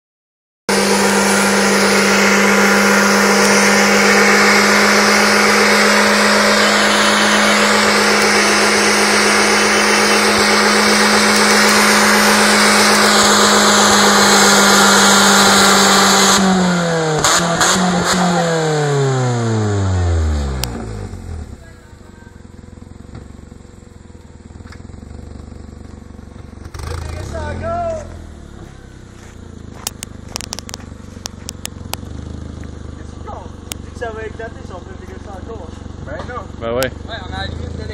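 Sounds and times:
car engine revving high: 0.7 - 37.9
sharp clicks: 29.8 - 32.1.

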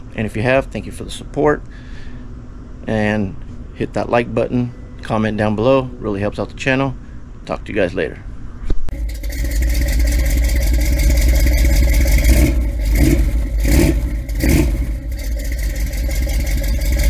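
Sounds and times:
car engine revving: 8.9 - 17.0.

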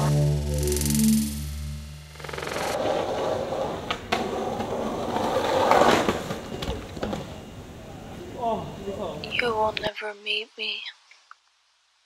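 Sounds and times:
music: 0.0 - 2.8
skateboard wheels rolling on asphalt: 2.8 - 7.4.

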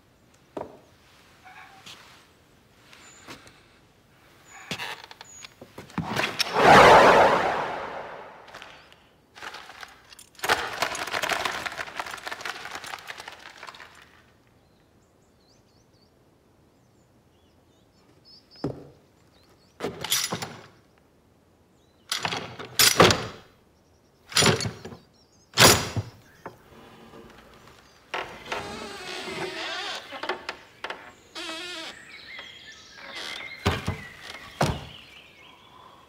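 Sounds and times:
bird wings flapping: 9.4 - 14.3.

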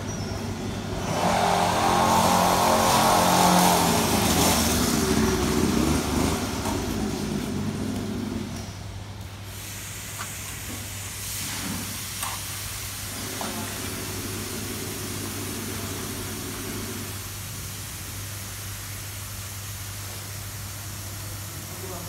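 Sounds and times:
small petrol engine running: 0.9 - 8.5
constant hiss: 2.5 - 22.0.

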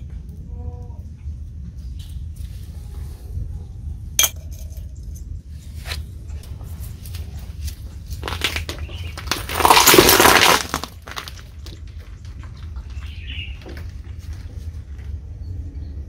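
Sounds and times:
tyre crushing plastic cylinder: 7.7 - 12.8.

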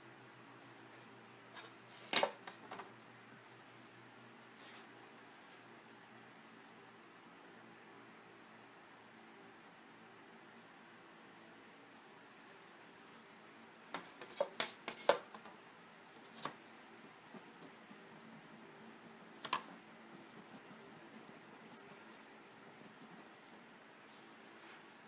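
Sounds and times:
colored pencil scratching on paper: 17.0 - 19.4, 20.1 - 23.4.

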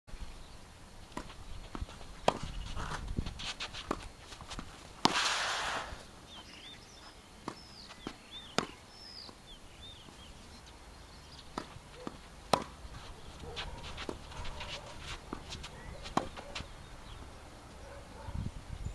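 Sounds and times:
birds chirping: 0.1 - 18.9
footsteps: 1.2 - 7.2, 11.5 - 16.8
shoe scuffing: 1.9 - 6.1, 12.9 - 16.7
racket hitting ball: 5.0 - 6.0, 11.5 - 12.8, 13.6 - 16.6
ball bouncing: 11.5 - 12.8.

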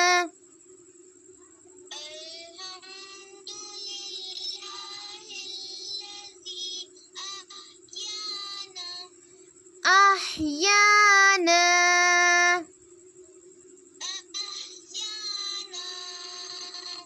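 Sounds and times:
girl chanting: 0.0 - 0.3, 9.8 - 12.7
steady low hum: 0.0 - 17.0.

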